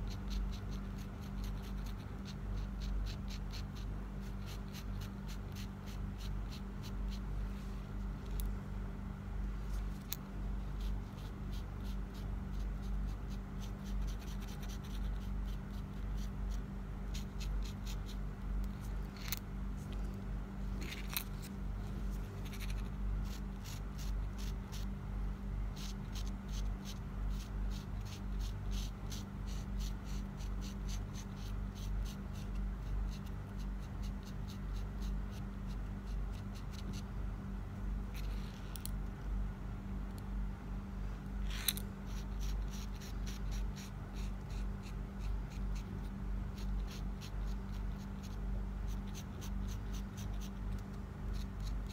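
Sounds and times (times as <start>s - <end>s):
steady low hum: 0.0s - 51.9s
marker tip tapping and scratching: 10.8s - 19.4s, 22.4s - 24.9s, 41.5s - 45.9s, 46.6s - 51.9s.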